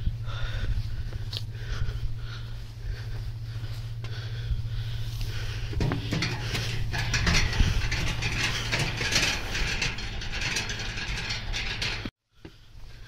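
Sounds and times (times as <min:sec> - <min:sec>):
prayer wheels rattling and clicking: 0:05.1 - 0:12.1.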